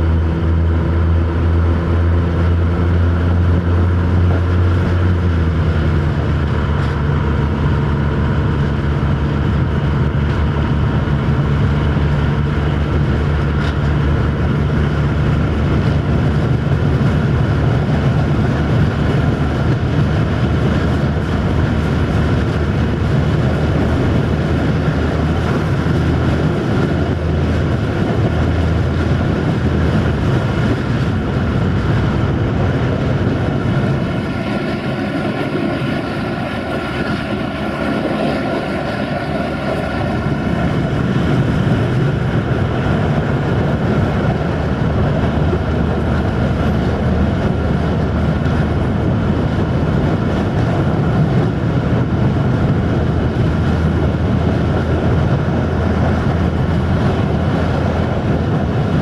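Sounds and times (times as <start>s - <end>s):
air rushing: 0.0s - 59.0s
diesel engine running: 0.0s - 59.0s
track noise: 0.0s - 59.0s.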